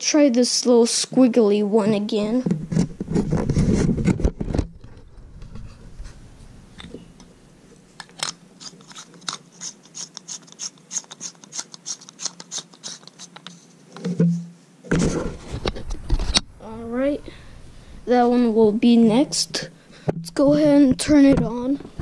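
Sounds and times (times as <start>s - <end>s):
low hum: 2.5s - 8.5s.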